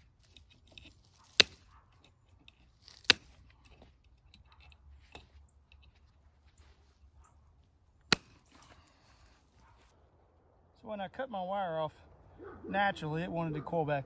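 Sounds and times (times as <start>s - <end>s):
wire rustling: 0.0s - 10.0s
wire cutters snapping wire: 0.1s - 5.9s.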